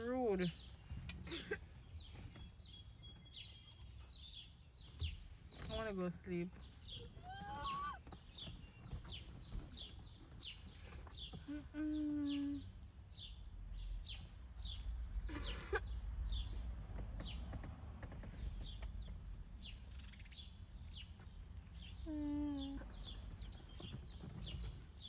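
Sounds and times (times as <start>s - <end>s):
sparrows chirping: 0.0s - 25.0s
lower-pitched bird calls: 6.8s - 13.4s
steady low rumble: 12.8s - 21.8s.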